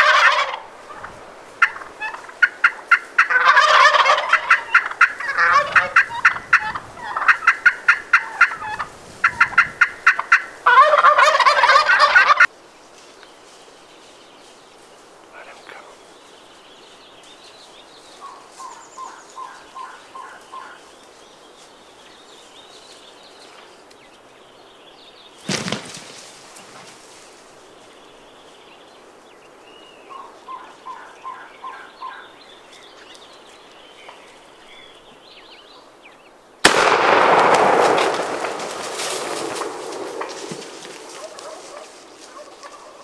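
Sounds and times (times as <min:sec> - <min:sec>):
turkey yelps: 0:00.0 - 0:01.0, 0:01.6 - 0:12.5, 0:18.2 - 0:20.8, 0:30.1 - 0:32.2, 0:40.2 - 0:43.0
small birds chirping: 0:12.8 - 0:25.8, 0:26.7 - 0:36.5
sharp crack: 0:25.4 - 0:26.1, 0:36.6 - 0:41.8
loud gunshot: 0:36.6 - 0:40.2.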